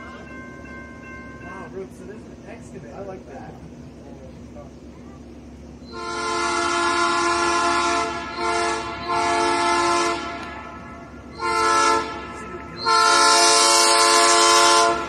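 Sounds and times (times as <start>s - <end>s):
train rumbling past: 0.0s - 15.0s
locomotive air horn blasts: 5.8s - 15.0s.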